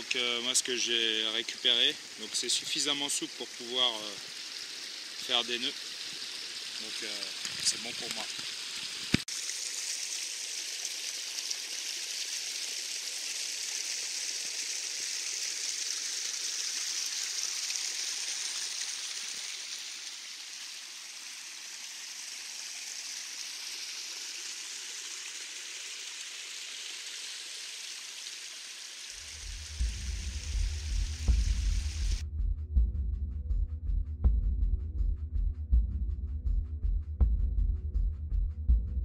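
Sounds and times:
stream babbling: 0:00.0 - 0:29.8
low throbbing music: 0:29.2 - 0:39.0.

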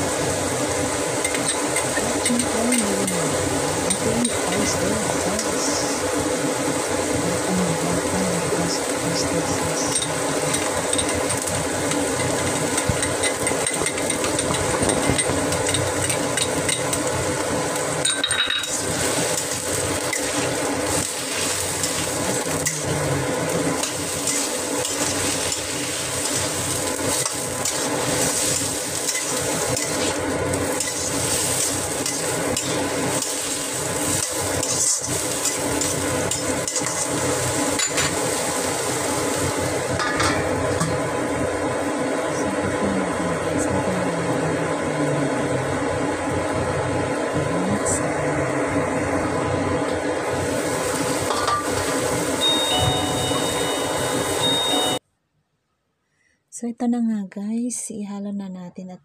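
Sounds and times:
food sizzling: 0:00.0 - 0:55.0
steady mechanical hum: 0:00.0 - 0:55.0
spatula scraping in a wok: 0:23.7 - 0:40.4.

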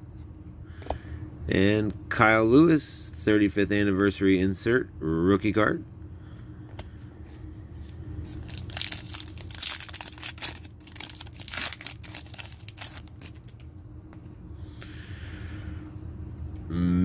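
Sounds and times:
foil wrapper crinkling and tearing: 0:08.3 - 0:13.7.

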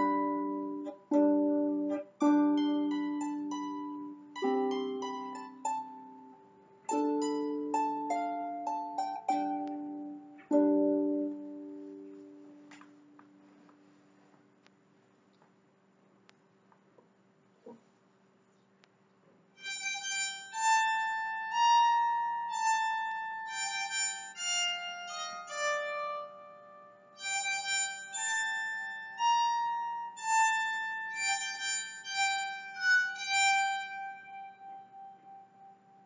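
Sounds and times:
bowed psaltery melody: 0:00.0 - 0:14.2, 0:19.6 - 0:36.0
faint steady hum: 0:00.0 - 0:36.0.

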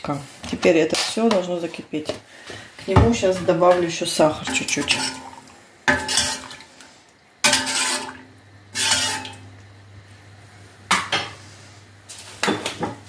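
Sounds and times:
metal spoon clanking in pot: 0:04.4 - 0:06.5, 0:07.4 - 0:08.2, 0:08.8 - 0:09.4.

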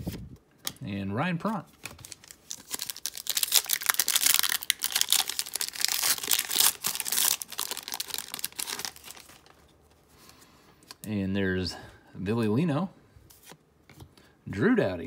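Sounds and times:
foil wrapper crinkling and tearing: 0:01.8 - 0:09.7.

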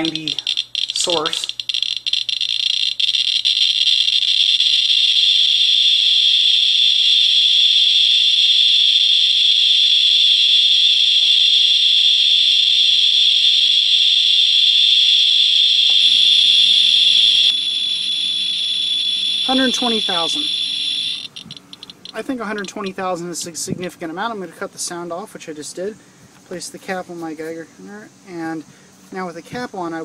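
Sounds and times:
geiger counter clicking: 0:00.0 - 0:05.6, 0:10.6 - 0:23.0.

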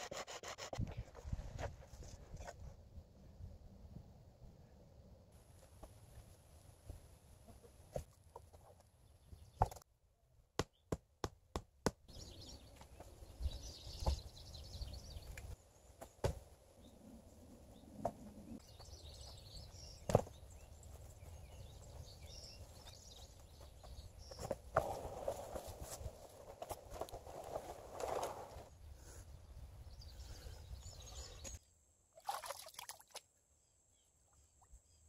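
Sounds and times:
wooden knocks of logs: 0:20.0 - 0:20.4.

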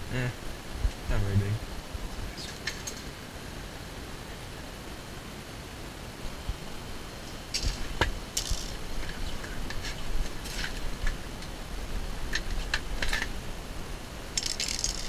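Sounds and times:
camera movement rumble: 0:07.3 - 0:13.6
gear clicks and scrapes: 0:07.6 - 0:11.2, 0:14.4 - 0:15.0.

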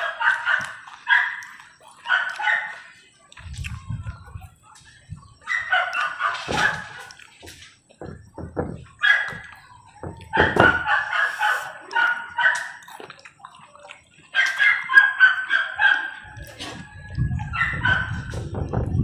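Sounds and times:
fowl calling: 0:05.4 - 0:08.1, 0:09.0 - 0:12.8
soft low knocks: 0:08.0 - 0:10.9, 0:18.1 - 0:19.0.

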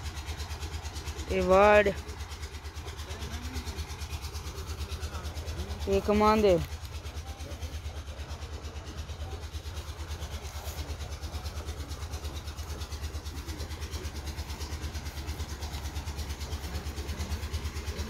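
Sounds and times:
diesel engine idling: 0:00.0 - 0:18.0.

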